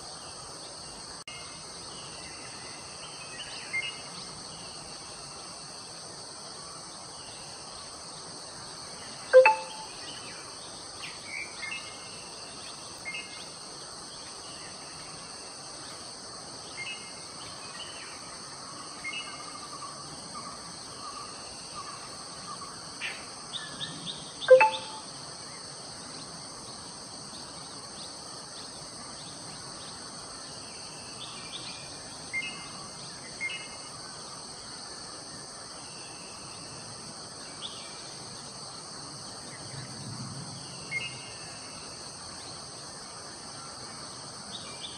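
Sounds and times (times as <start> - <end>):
insect drone: 0.0 - 44.9
birds chirping: 24.5 - 25.0.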